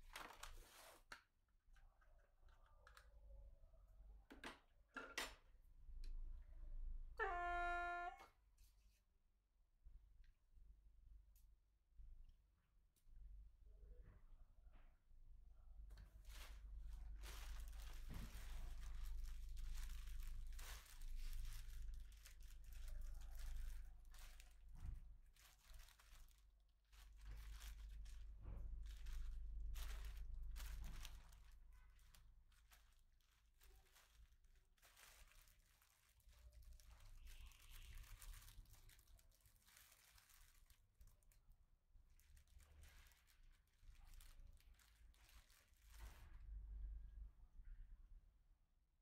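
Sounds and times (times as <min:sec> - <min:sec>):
plastic bag crinkling: 0:00.0 - 0:01.0, 0:16.1 - 0:46.3.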